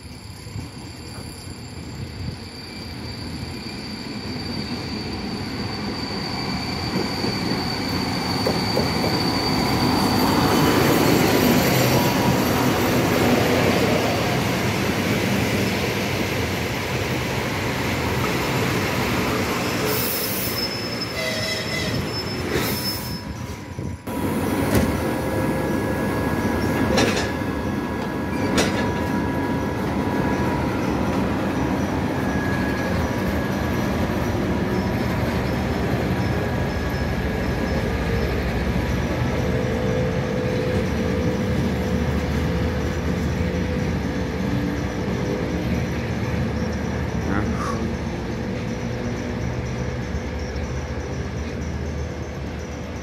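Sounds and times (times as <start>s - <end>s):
diesel locomotive engine: 0.0s - 53.0s
train wheels rolling on rails: 0.0s - 53.0s
wheel or brake squeals: 0.1s - 12.6s, 18.2s - 24.0s, 28.2s - 38.2s.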